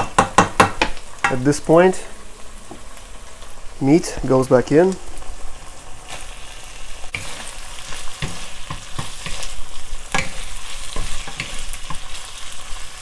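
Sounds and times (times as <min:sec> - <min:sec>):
food sizzling in a wok: 0:00.0 - 0:13.0
wooden spatulas scraping a pan: 0:07.1 - 0:12.3.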